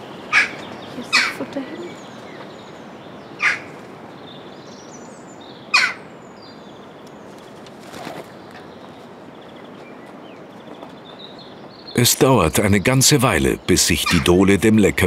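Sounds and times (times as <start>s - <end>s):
jackdaws calling: 0.3s - 1.5s, 3.3s - 3.8s, 5.7s - 6.1s, 11.9s - 15.0s.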